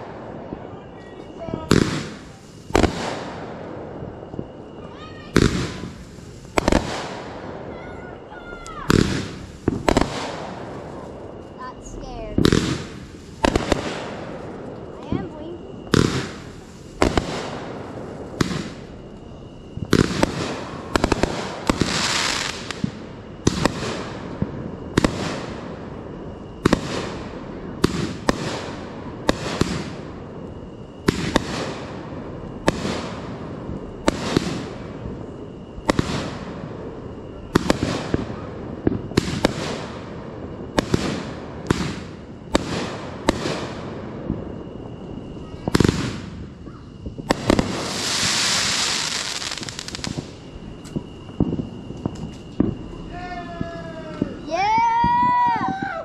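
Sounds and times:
firework crackle: 0.0 - 56.0
firework shells bursting: 45.3 - 55.9.

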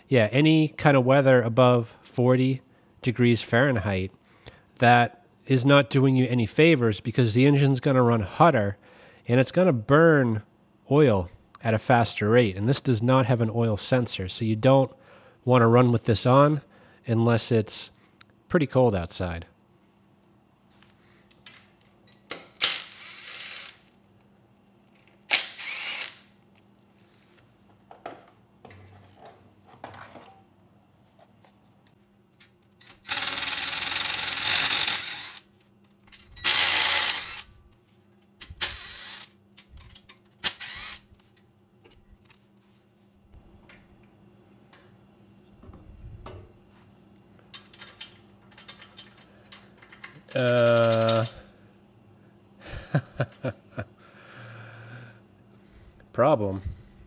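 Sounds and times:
cordless impact driver running: 25.3 - 26.2, 33.1 - 35.4, 36.5 - 37.5.

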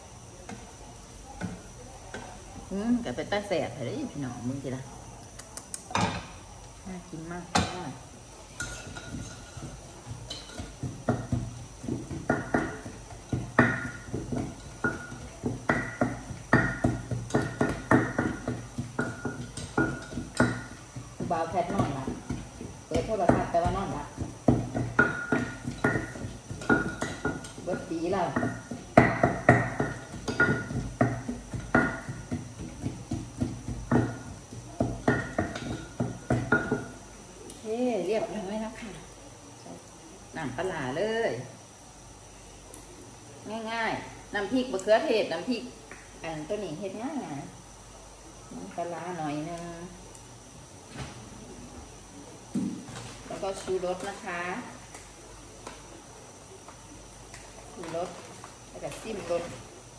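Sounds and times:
pestle pounding in a mortar: 8.6 - 37.0.

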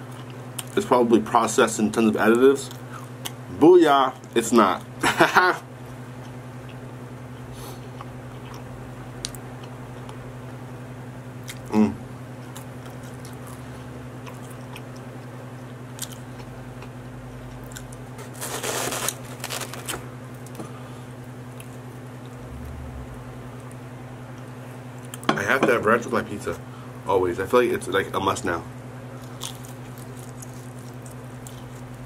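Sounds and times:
steady low hum: 0.0 - 32.0
close chewing: 12.4 - 20.6, 29.2 - 32.0.

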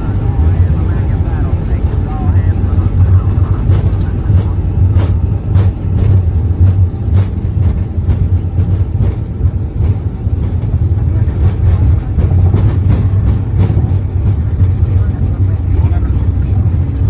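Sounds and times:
engines and rolling gear rumble: 0.0 - 17.0.

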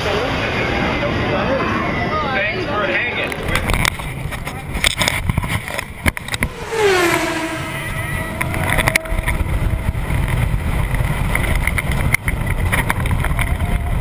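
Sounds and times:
wind rushing: 6.3 - 10.2
loud falling wail: 6.4 - 10.2.

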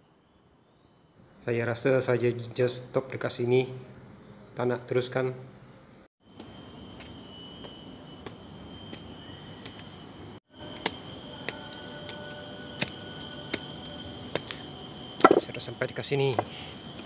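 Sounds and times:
shrill insect chorus: 6.2 - 17.0.

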